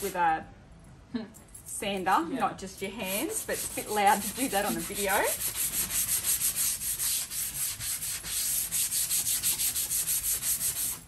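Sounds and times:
sandpaper rasping on wood: 0:03.0 - 0:11.0.

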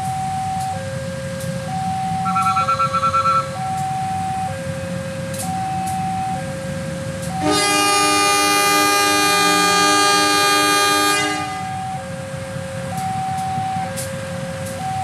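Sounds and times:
diesel locomotive rumbling: 0:00.0 - 0:15.0
two-tone crossing alarm: 0:00.0 - 0:15.0
rapid pulsing beep: 0:02.2 - 0:03.5.

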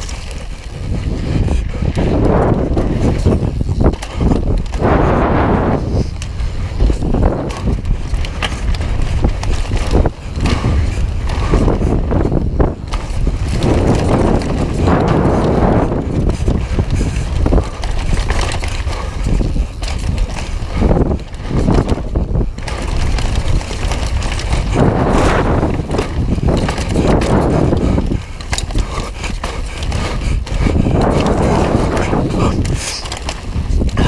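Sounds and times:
bike rattling and knocking: 0:00.0 - 0:34.0
tyres rolling on dirt trail: 0:00.0 - 0:34.0
wind buffeting microphone: 0:00.0 - 0:34.0.

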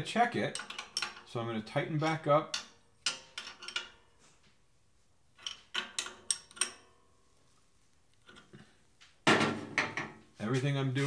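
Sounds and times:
hand tool clicking on metal: 0:00.5 - 0:01.3, 0:02.4 - 0:04.0.

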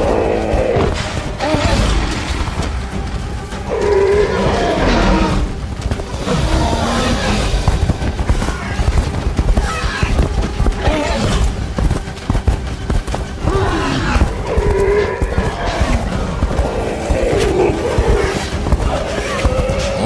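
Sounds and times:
dramatic film score: 0:00.0 - 0:20.0
dinosaur growling and bellowing: 0:03.6 - 0:07.6, 0:13.4 - 0:20.0.

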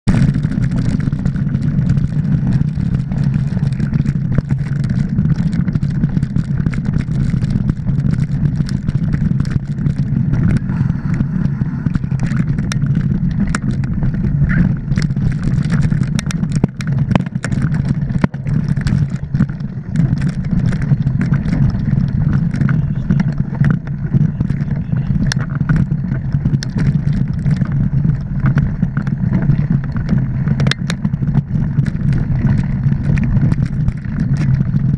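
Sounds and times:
bike clicking and rattling: 0:00.0 - 0:34.9
bike tyres and wind rumble: 0:00.0 - 0:34.9.

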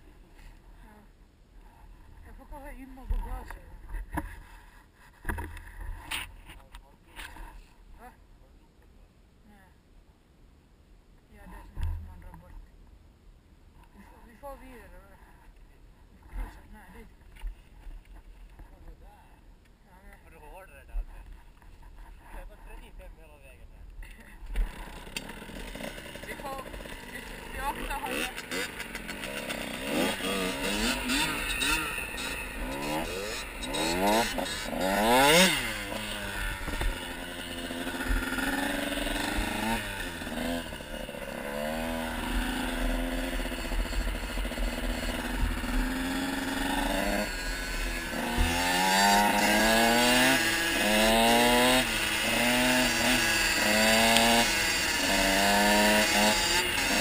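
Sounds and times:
two-stroke dirt bike engines revving: 0:24.6 - 0:57.0.

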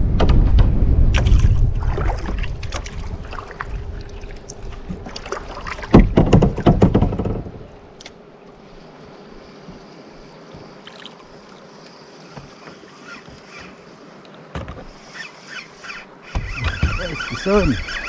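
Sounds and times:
low rumble: 0:00.0 - 0:05.1
sharp knocks and clatters: 0:05.8 - 0:07.6.

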